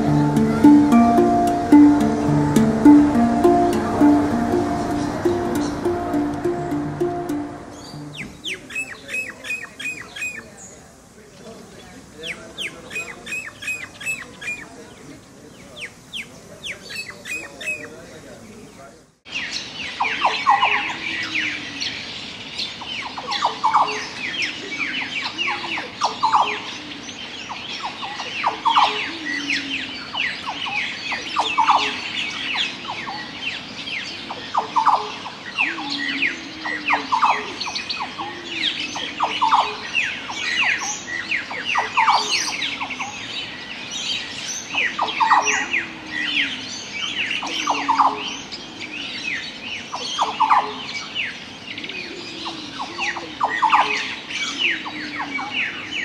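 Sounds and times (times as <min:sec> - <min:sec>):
repeating bird call: 0:00.0 - 0:10.0
tropical bird chorus: 0:00.0 - 0:56.0.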